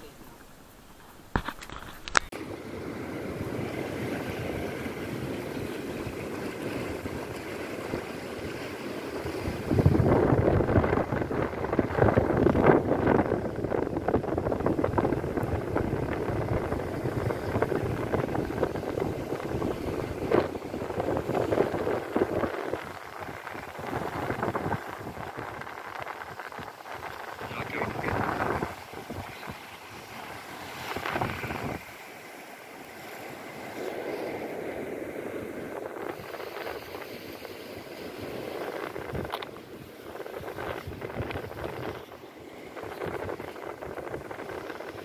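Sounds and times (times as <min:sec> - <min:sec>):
surf washing against rocky shore: 0:00.0 - 0:45.0
wind buffeting microphone: 0:01.7 - 0:45.0.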